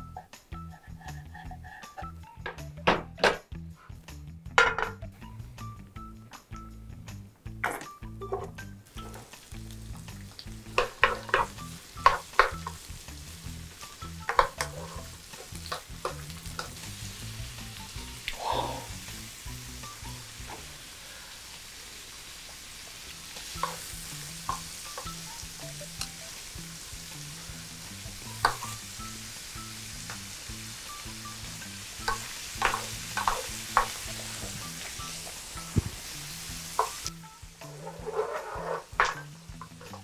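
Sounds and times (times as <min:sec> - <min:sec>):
knocks against pan: 0:04.6 - 0:05.0
food sizzling in a frying pan: 0:08.5 - 0:40.0.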